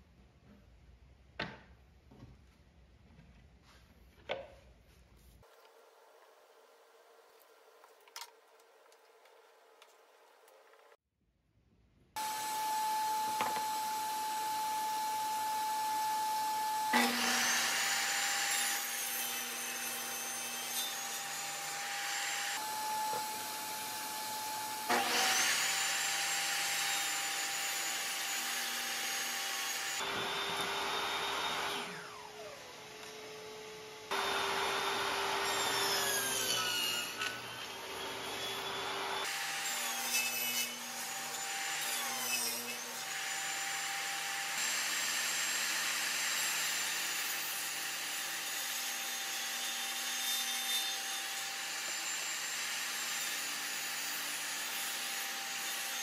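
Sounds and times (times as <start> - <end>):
shop vacuum running: 12.2 - 18.2, 29.3 - 39.4
table saw cutting wood: 12.2 - 56.0.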